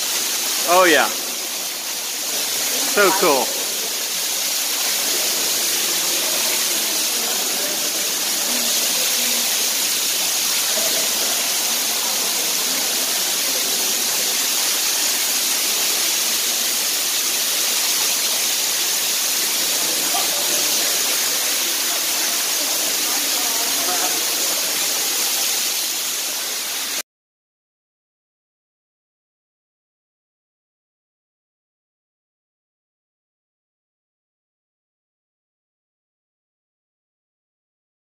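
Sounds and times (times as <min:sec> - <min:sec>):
waterfall rushing in a cave: 0:00.0 - 0:27.0.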